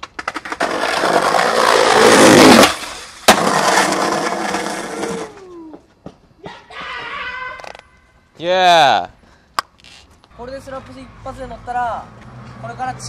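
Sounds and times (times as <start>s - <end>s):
skateboard crack: 0.0s - 5.6s
skateboard wheels rolling on paving: 0.0s - 6.2s.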